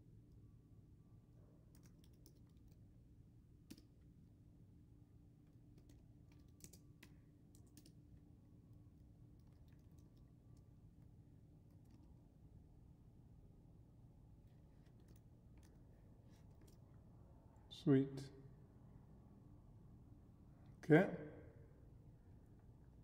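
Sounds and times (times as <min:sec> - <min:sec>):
low steady hum: 0:00.0 - 0:23.0
computer keyboard typing: 0:01.7 - 0:02.8, 0:05.7 - 0:08.1, 0:09.3 - 0:10.7.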